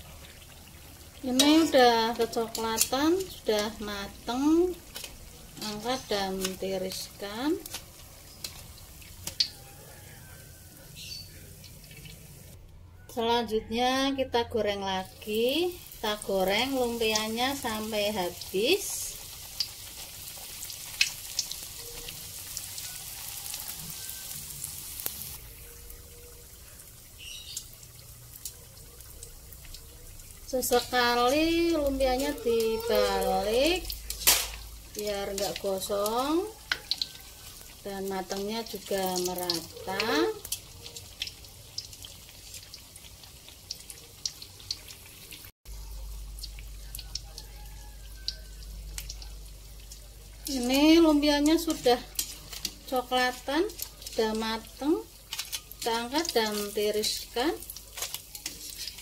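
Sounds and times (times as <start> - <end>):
spring rolls sizzling in oil: 0.0 - 12.6, 14.6 - 59.0
oil popping: 25.0 - 45.5.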